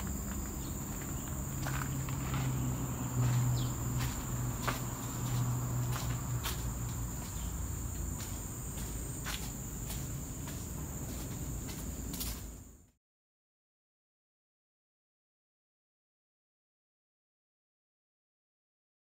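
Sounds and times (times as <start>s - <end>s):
footsteps on concrete floor: 0.0s - 12.6s
insects chirring: 0.0s - 12.9s.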